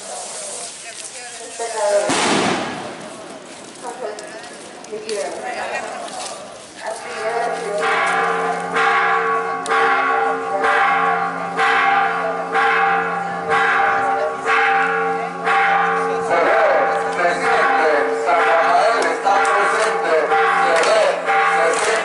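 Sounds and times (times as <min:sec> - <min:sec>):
church bells ringing: 0:06.4 - 0:22.0.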